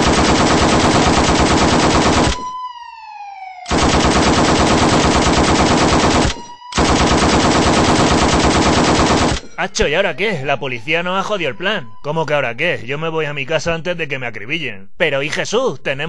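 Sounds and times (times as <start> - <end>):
automatic gunfire: 0.0 - 2.5, 3.7 - 9.5.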